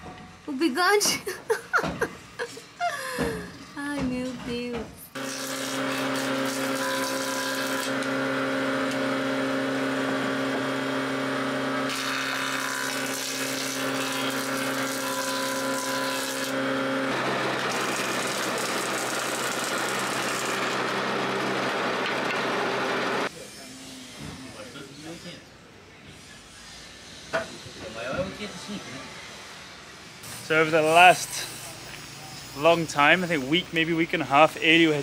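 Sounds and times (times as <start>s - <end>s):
thickness planer: 1.8s - 25.2s
woodworking machine planing boards: 4.0s - 23.3s.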